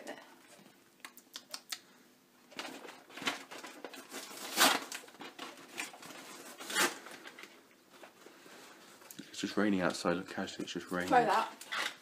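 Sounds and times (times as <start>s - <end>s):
crackling handling noise: 2.4s - 12.0s
crinkling bursts: 2.4s - 12.0s.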